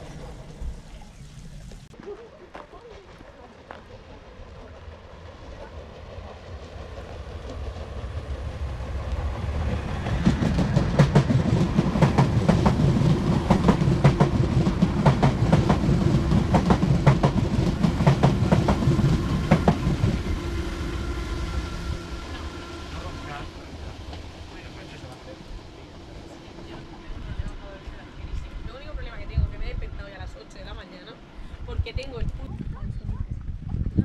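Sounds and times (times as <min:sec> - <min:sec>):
passenger train rumble: 0:00.0 - 0:34.0
train wheels clicking over rail joints: 0:06.2 - 0:20.5.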